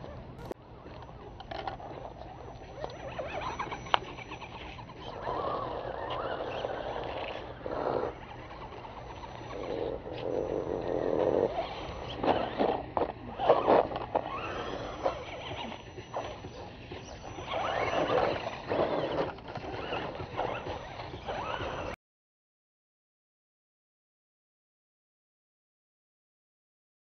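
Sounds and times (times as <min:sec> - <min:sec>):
toy car electric motor whining: 0:00.4 - 0:22.0.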